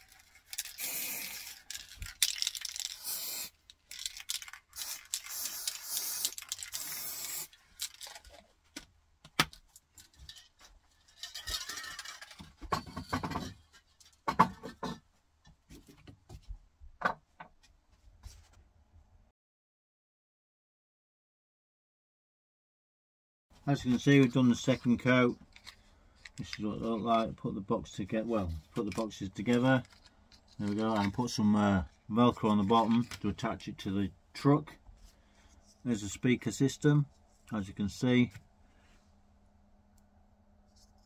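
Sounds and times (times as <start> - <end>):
small objects handled on workbench: 0.0 - 15.0
spray paint can hissing: 0.6 - 3.6, 4.7 - 7.6.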